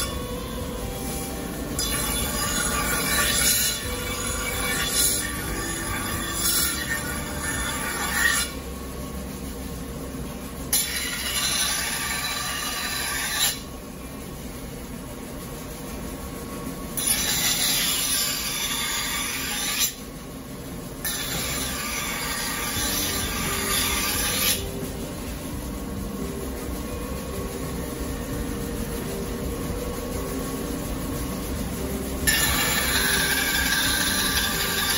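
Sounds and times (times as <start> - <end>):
knife grinding on grinding wheel: 0.0 - 8.6, 10.7 - 13.7, 17.0 - 20.0, 21.0 - 25.2, 31.8 - 34.9
grinding wheel running: 0.0 - 14.1, 16.7 - 34.9.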